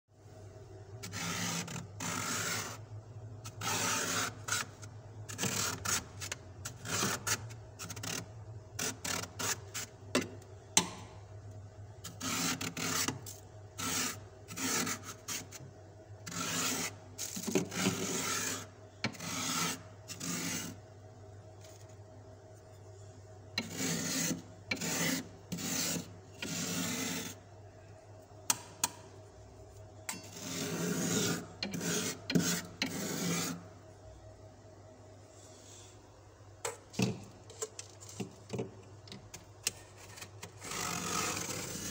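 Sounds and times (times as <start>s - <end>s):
metal spoon scraping frost: 1.0s - 10.3s, 12.0s - 15.6s, 16.2s - 20.8s, 23.6s - 27.4s, 30.1s - 33.7s, 39.7s - 41.9s.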